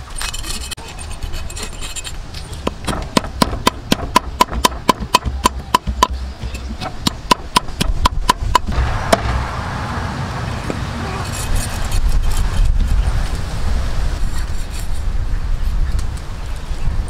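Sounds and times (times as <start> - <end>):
cleaver scraping fish scales: 0.0 - 2.8, 11.0 - 13.3, 14.2 - 15.1.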